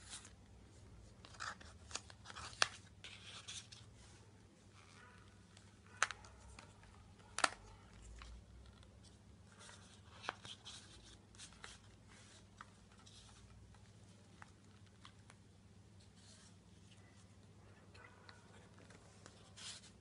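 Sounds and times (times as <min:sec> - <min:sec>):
faint low hum: 0:00.0 - 0:20.0
paper rustling: 0:01.1 - 0:04.2, 0:04.8 - 0:15.4, 0:18.3 - 0:20.0.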